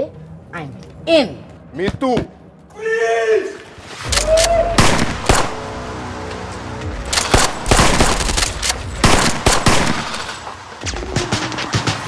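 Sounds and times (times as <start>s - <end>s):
rapid gunfire: 7.2s - 10.3s.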